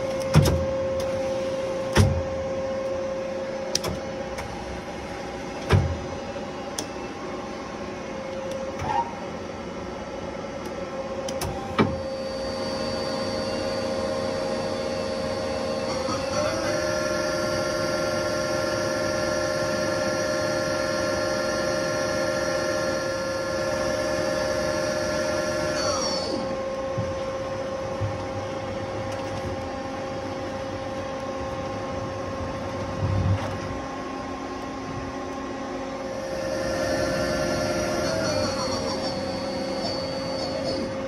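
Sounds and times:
low machine hum: 0:00.0 - 0:41.0
lathe spindle whine: 0:11.9 - 0:32.6, 0:34.2 - 0:41.0.

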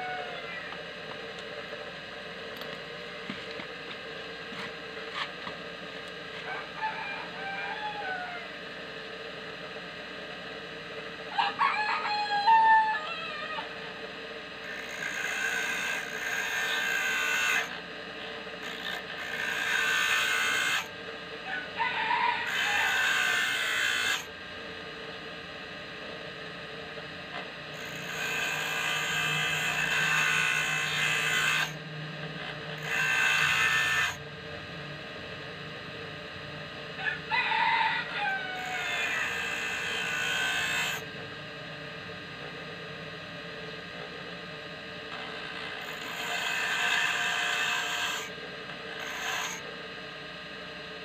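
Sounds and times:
bench grinder motor hum: 0:13.6 - 0:21.8, 0:22.4 - 0:37.2, 0:38.0 - 0:51.0
drill bit grinding on wheel: 0:14.6 - 0:17.8, 0:18.6 - 0:20.9, 0:22.4 - 0:24.4, 0:27.7 - 0:31.8, 0:32.4 - 0:34.2, 0:38.0 - 0:41.1, 0:45.1 - 0:49.7.

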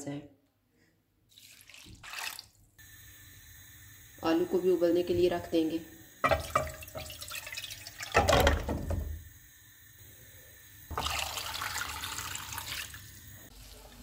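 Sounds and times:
water pouring and splashing: 0:01.3 - 0:02.7, 0:06.2 - 0:09.2, 0:10.9 - 0:14.0.

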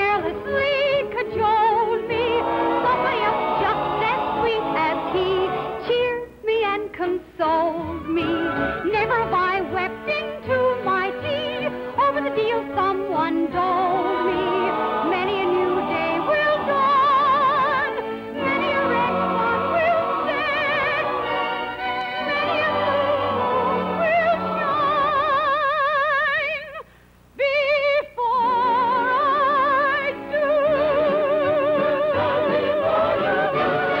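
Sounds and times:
instrumental accompaniment: 0:00.0 - 0:05.9, 0:29.6 - 0:34.0
woman singing with vibrato: 0:00.0 - 0:26.8, 0:27.4 - 0:34.0.

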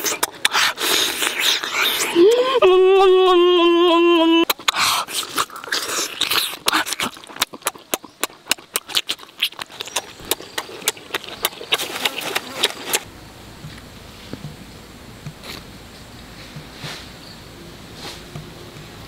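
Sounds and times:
person chewing and lip-smacking: 0:00.0 - 0:13.1.

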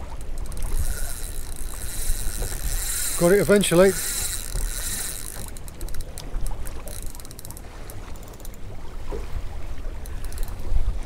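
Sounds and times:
fast fine clicking: 0:00.0 - 0:08.6
wind and water rumble: 0:00.0 - 0:11.0.

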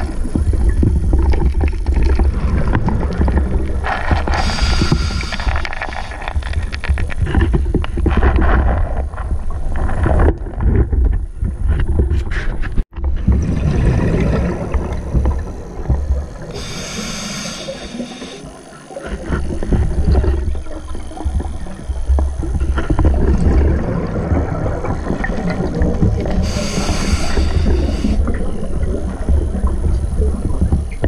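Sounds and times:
underwater exhaled bubbles gurgling: 0:00.0 - 0:10.6, 0:13.1 - 0:31.0
regulator inhale hiss: 0:04.3 - 0:06.2, 0:16.5 - 0:18.6, 0:26.4 - 0:28.2.

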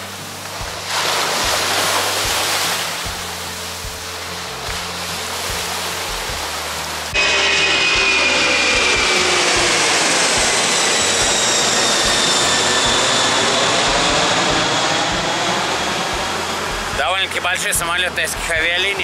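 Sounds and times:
jet airliner passing overhead: 0:04.9 - 0:19.0.

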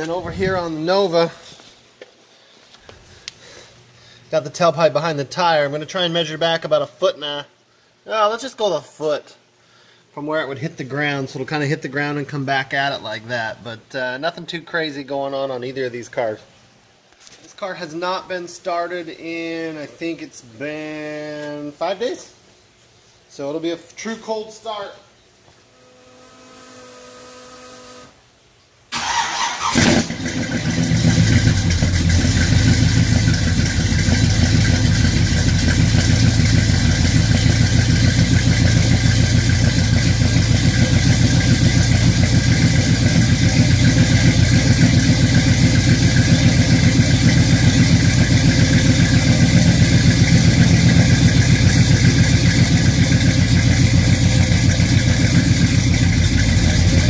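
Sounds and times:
engine cranking: 0:29.0 - 0:57.0
vee eight engine idling: 0:30.3 - 0:57.0.

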